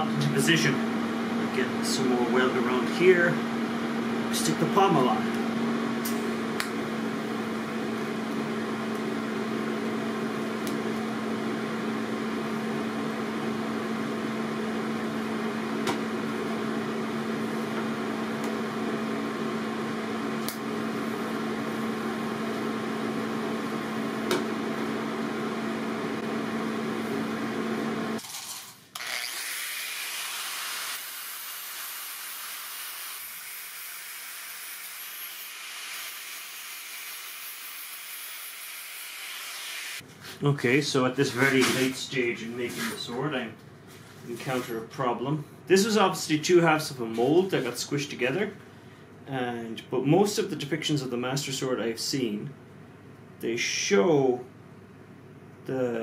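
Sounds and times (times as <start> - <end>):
welding arc buzzing: 28.1 - 40.0
angle grinder hissing: 29.0 - 40.0.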